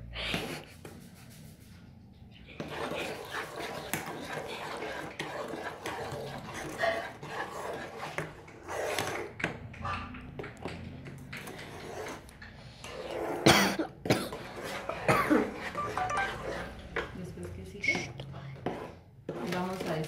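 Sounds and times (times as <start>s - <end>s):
spoon stirring in metal pot: 2.6s - 17.2s, 17.9s - 20.0s
person coughing: 13.5s - 14.4s, 15.0s - 15.5s.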